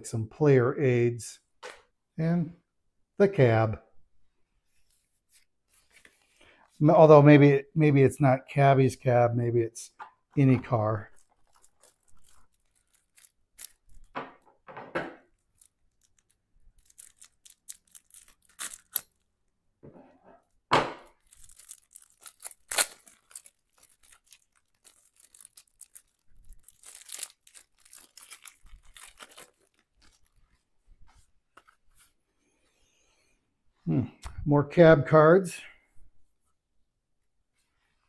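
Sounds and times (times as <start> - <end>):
shrink-wrap crinkling and tearing: 10.4 - 14.1, 15.3 - 19.3, 21.1 - 30.6.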